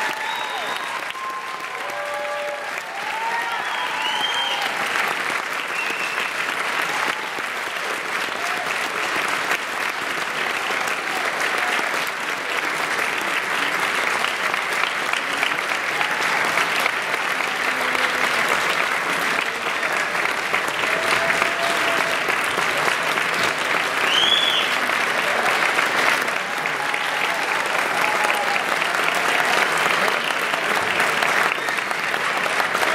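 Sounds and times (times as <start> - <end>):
high whoop: 0.0 - 4.9
scattered cheers: 0.0 - 9.2, 10.4 - 12.6, 14.8 - 32.9
audience applauding: 0.0 - 32.9.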